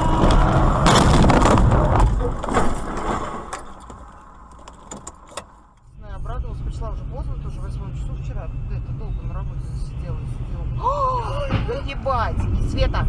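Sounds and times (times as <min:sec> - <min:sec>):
car crash impact: 0:00.0 - 0:05.7.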